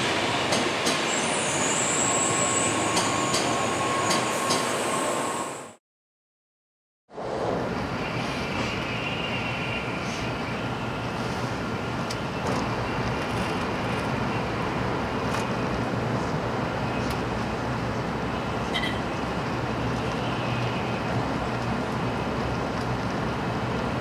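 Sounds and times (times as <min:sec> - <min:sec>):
train interior rumble: 0:07.2 - 0:24.0.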